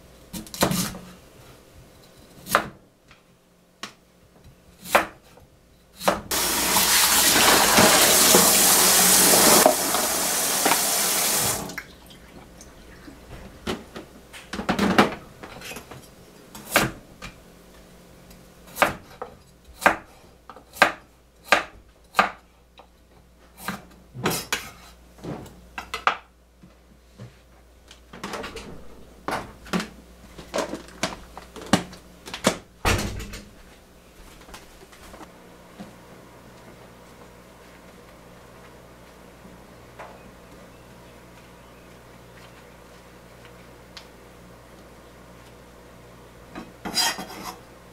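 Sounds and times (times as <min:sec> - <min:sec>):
kitchen tap running: 0:06.3 - 0:13.2
knife chopping on wooden board: 0:18.7 - 0:19.2, 0:19.8 - 0:22.4.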